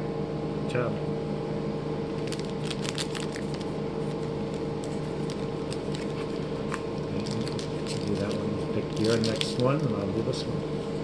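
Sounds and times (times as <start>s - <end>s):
steady low hum: 0.0s - 11.0s
plastic wrapper crinkling: 2.2s - 10.0s.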